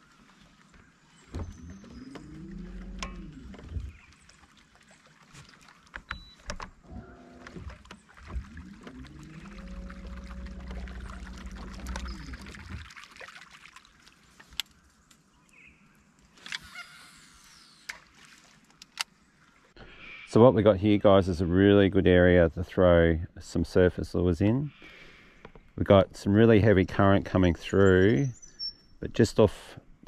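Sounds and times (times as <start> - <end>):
small clicks and knocks: 5.9 - 6.8.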